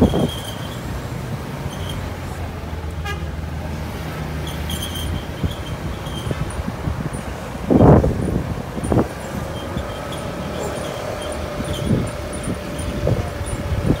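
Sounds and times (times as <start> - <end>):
car engines passing: 0.0 - 14.0.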